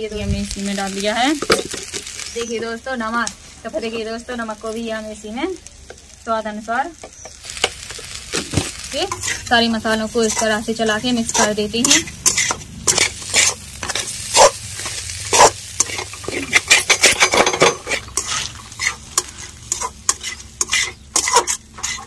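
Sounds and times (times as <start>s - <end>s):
food sizzling: 0.0s - 22.0s
spoon scraping a pan: 7.0s - 22.0s.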